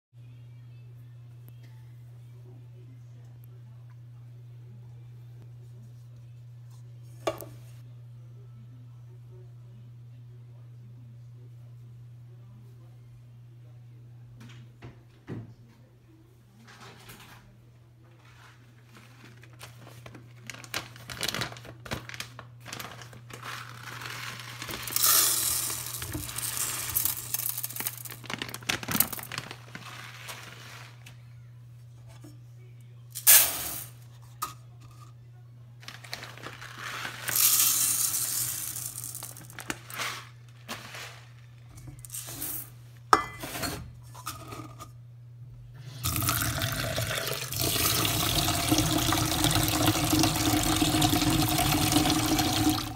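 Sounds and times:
rice grains poured into pot: 23.4 - 28.4, 36.1 - 41.2
tap running water: 46.0 - 52.9.

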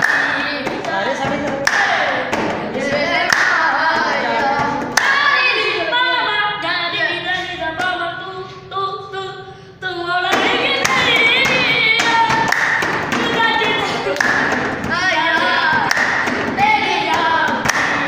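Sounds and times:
clapping: 0.0 - 0.8, 1.6 - 2.0, 3.3 - 3.6, 5.0 - 5.2, 10.8 - 14.6, 15.8 - 16.4, 17.6 - 18.0
boys singing unaccompanied: 0.0 - 18.0.

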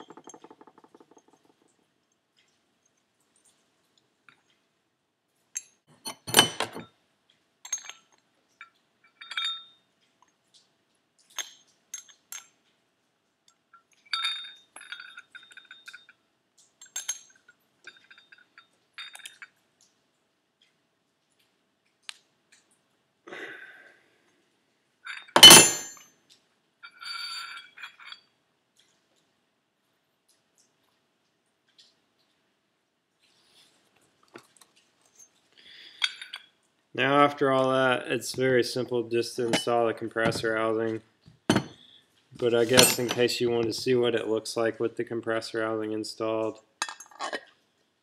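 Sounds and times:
metal tools and parts clinking: 0.0 - 1.8, 5.6 - 6.9, 7.6 - 9.9, 11.2 - 12.6, 13.7 - 19.6, 25.1 - 26.1, 26.8 - 28.3, 34.4 - 36.6, 39.4 - 43.7, 46.8 - 47.5
metal clank: 6.0 - 6.9, 25.1 - 26.0, 41.5 - 41.8, 42.6 - 43.3.

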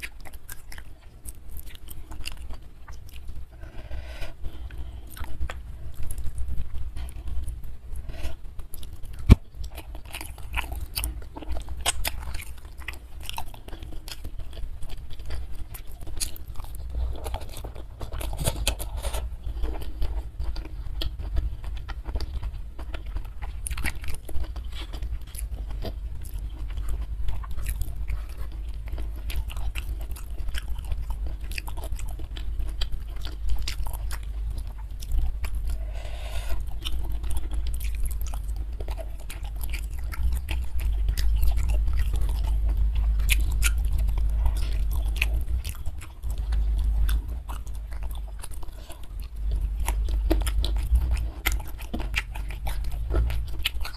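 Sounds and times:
food being chewed and crunched: 0.0 - 53.9.

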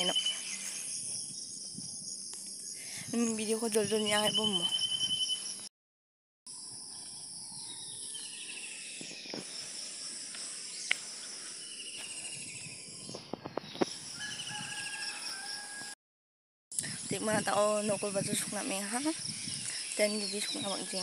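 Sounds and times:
high-pitched insect chorus: 0.0 - 5.7, 6.5 - 16.0, 16.8 - 21.0
pulsed chirping trills: 0.0 - 5.7.

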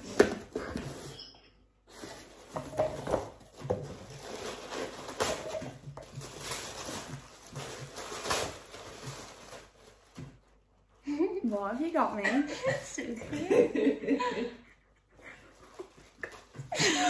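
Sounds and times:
wrapping paper rustling: 0.6 - 12.3.

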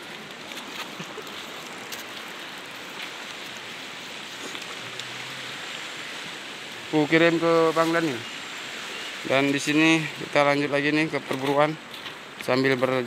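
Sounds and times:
river flowing over stones: 0.0 - 13.0.

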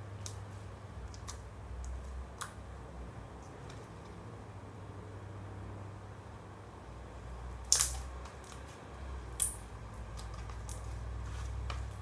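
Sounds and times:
slime squished by hand: 7.6 - 12.0
wet slime pops: 7.7 - 8.6.

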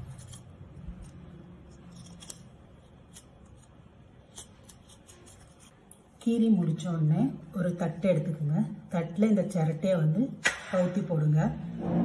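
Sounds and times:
knife blade scraping: 0.0 - 6.0.

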